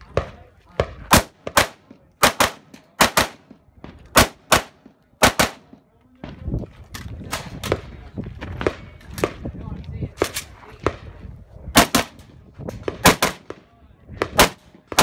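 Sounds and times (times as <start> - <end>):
rifle shots in quick pairs: 0.2 - 3.5, 4.1 - 5.7, 11.8 - 12.2, 12.8 - 13.6, 14.2 - 15.0.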